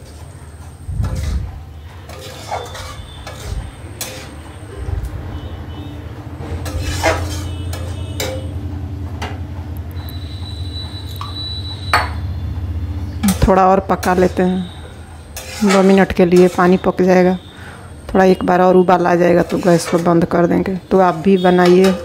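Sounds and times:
spatula scraping metal pan: 0.0 - 4.9, 6.4 - 8.6, 13.2 - 17.8, 19.0 - 20.5, 21.1 - 22.0
clinks against pan: 7.7 - 8.6.

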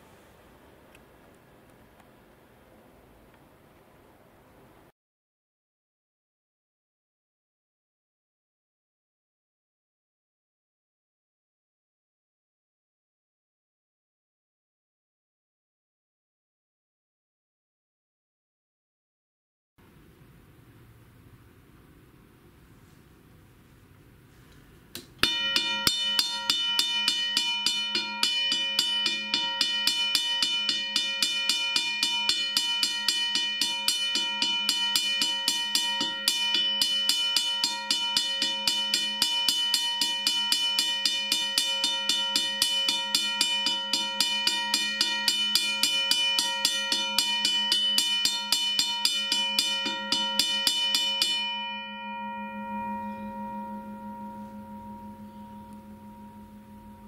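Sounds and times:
railroad crossing bell ringing: 25.2 - 57.0.

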